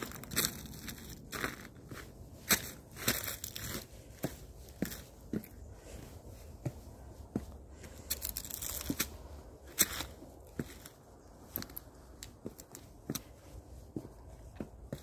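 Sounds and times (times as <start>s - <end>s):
crinkling rustles: 7.8s - 9.2s.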